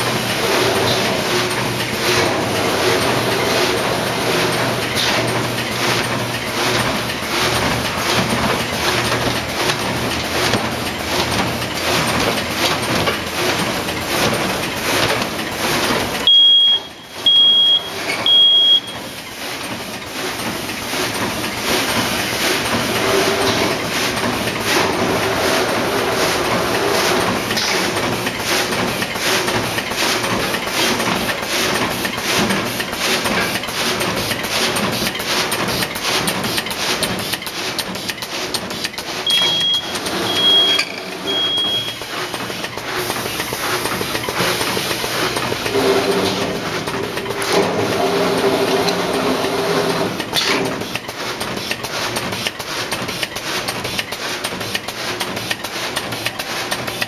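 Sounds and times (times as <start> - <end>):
machine clacking: 0.0 - 57.0
mechanical hum: 0.0 - 57.0
short high-pitched beeps: 16.3 - 19.0, 39.3 - 42.0.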